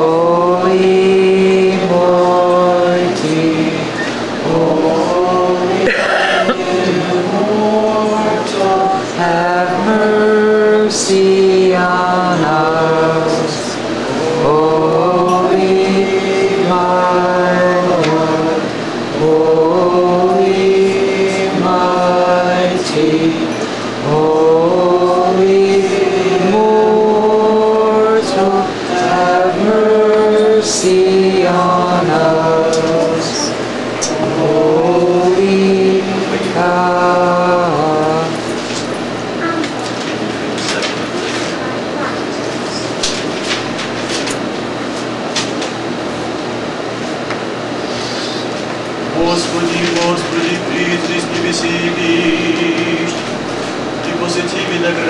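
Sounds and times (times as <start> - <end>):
voices singing liturgical chant: 0.0 - 39.4, 48.4 - 55.0.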